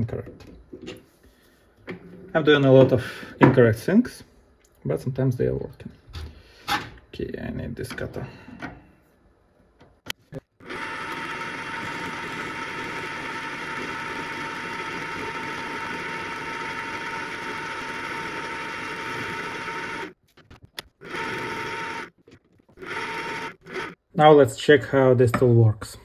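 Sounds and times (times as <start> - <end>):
metal lathe whining: 10.6 - 20.2, 21.0 - 22.1, 22.8 - 24.0.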